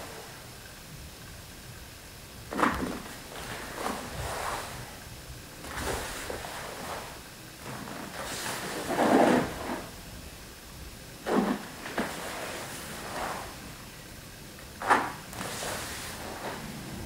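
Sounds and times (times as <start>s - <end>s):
uniform swishing and snapping: 14.8s - 16.6s
feet sliding and stamping on floor: 14.8s - 16.7s.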